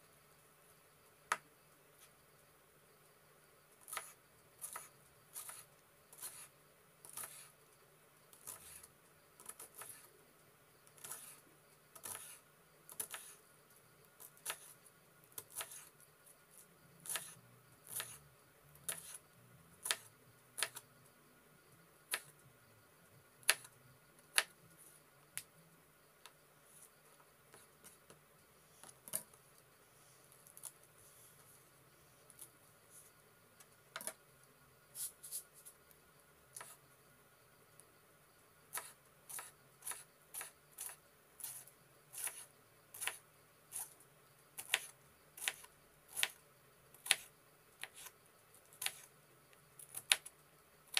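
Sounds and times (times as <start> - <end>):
knife slicing cabbage on board: 3.9 - 5.6, 17.9 - 18.2, 38.7 - 41.6, 42.2 - 42.4.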